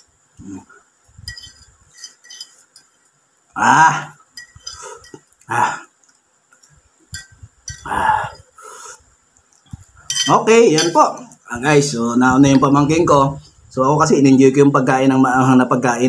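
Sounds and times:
fork clinking on ceramic plate: 1.2 - 2.9, 4.4 - 5.3, 7.1 - 7.9, 10.1 - 11.1
man's vocal sounds: 5.5 - 6.0, 7.8 - 8.5.

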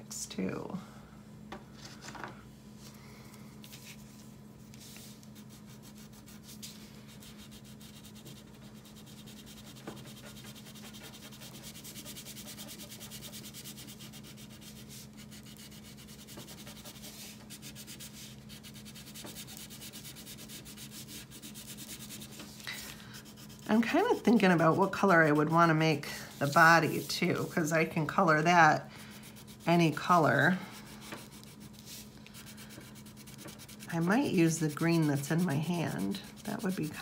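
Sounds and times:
crayon scratching on paper: 5.4 - 22.3, 23.2 - 25.6, 29.0 - 37.0.

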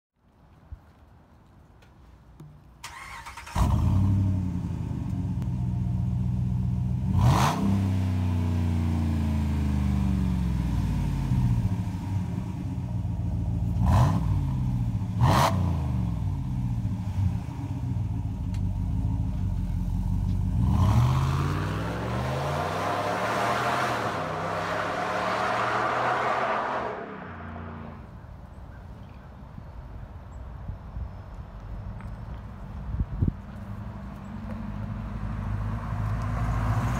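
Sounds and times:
truck driving off: 2.9 - 28.1
truck engine idling and revving: 2.9 - 28.2, 32.0 - 36.9.

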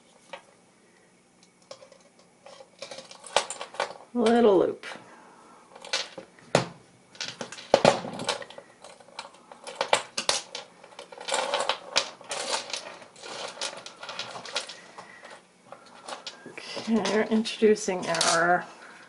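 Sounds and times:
pliers and metal pieces clinking: 15.8 - 18.6.

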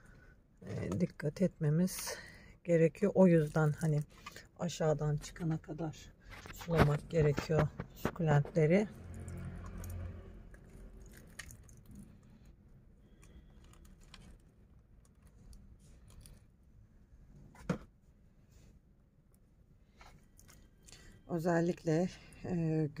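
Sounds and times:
plastic pots clicking and scraping: 0.6 - 2.2, 3.2 - 16.6.

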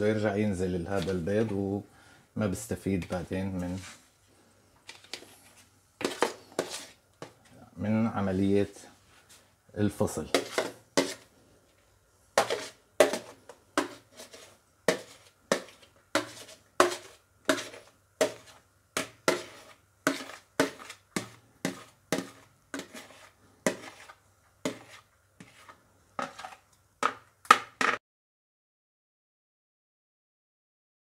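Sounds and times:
spoon scraping plastic bowl: 4.9 - 7.6, 10.3 - 11.3, 12.4 - 26.8.

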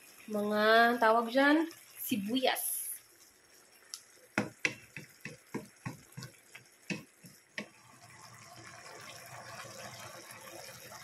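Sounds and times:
wooden spatula tapping a wok: 4.4 - 7.8.

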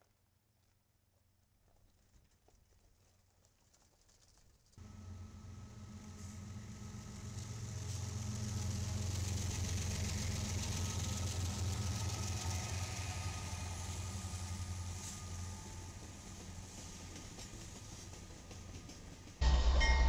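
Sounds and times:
hiss of wheels on rail: 4.8 - 19.4
diesel locomotive engines droning: 4.8 - 20.0.

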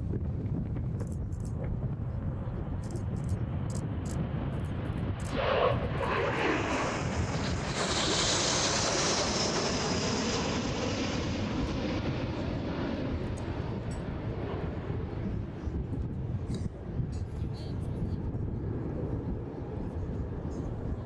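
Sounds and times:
jets flying past: 3.4 - 15.6.

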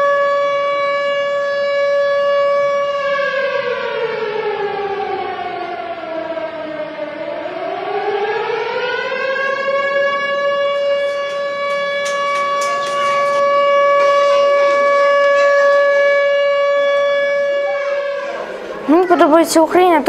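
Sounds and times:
air-raid siren wailing: 0.0 - 20.0
knocks and rustles: 10.8 - 15.8.

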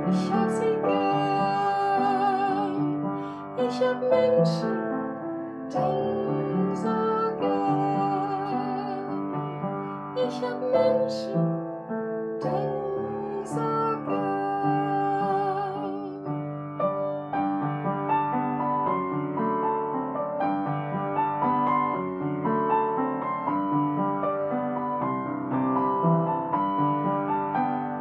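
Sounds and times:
upright piano: 0.0 - 28.0
woman singing with vibrato: 0.1 - 4.9, 5.7 - 9.4, 10.2 - 11.4, 12.4 - 16.2.

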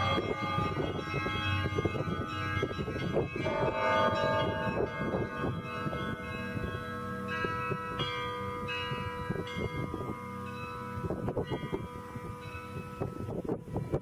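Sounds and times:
low rumbling noise: 0.0 - 10.0
church bells ringing: 0.0 - 14.0.

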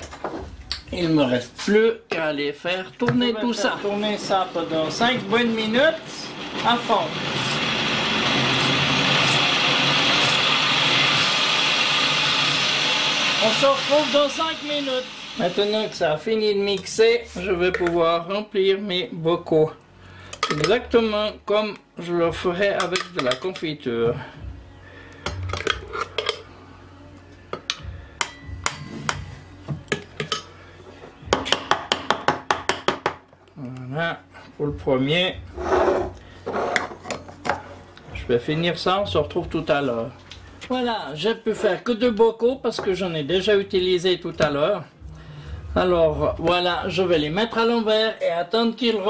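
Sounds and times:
blender motor running: 5.9 - 15.9
metal spoon scraping glass jug: 35.6 - 37.2.

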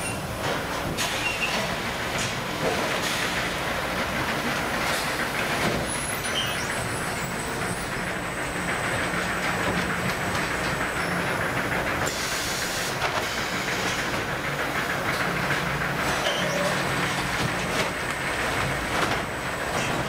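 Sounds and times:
machine rumble and clatter: 0.0 - 20.0.

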